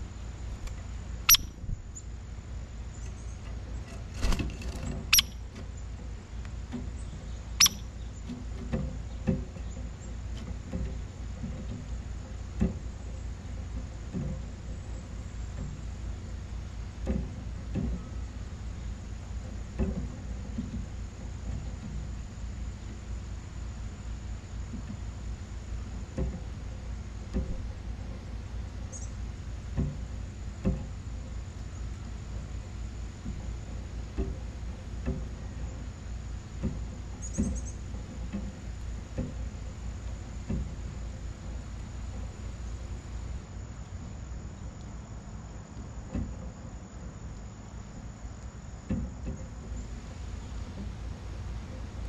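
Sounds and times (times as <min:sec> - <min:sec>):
crickets trilling: 0:00.0 - 0:08.4, 0:14.1 - 0:52.0
low background rumble: 0:00.0 - 0:52.0
birds tapping at feeder: 0:00.5 - 0:02.1, 0:02.8 - 0:16.2, 0:16.9 - 0:18.4, 0:19.4 - 0:23.0, 0:24.6 - 0:43.0
high bird chirp: 0:01.2 - 0:02.1, 0:05.1 - 0:05.4, 0:07.0 - 0:08.2.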